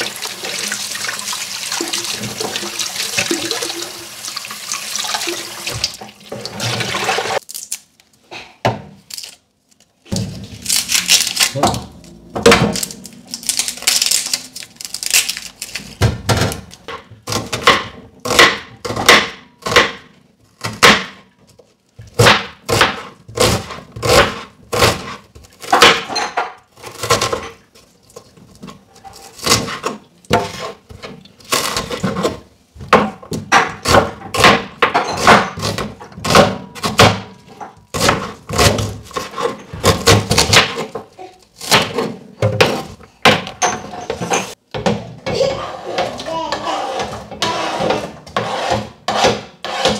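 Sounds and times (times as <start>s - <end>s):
onion skin rustling: 7.2s - 8.2s, 9.0s - 16.0s
knife chopping on cutting board: 38.0s - 40.9s, 47.0s - 49.9s.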